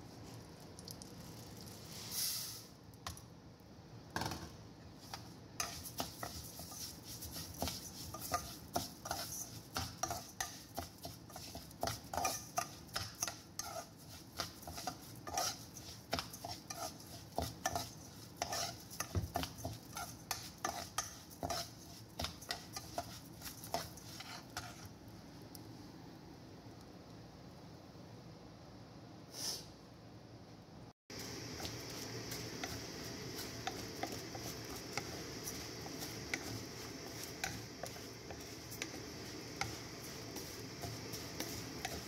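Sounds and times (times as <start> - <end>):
metal spoon scraping pot: 11.4 - 19.2.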